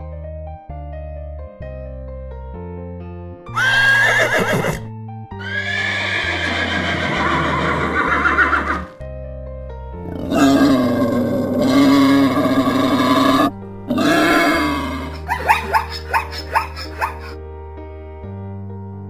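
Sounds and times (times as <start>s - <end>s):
background music: 0.0s - 19.0s
horse whinnying: 3.5s - 9.0s, 10.1s - 17.4s
wild boar grunting: 10.0s - 17.4s.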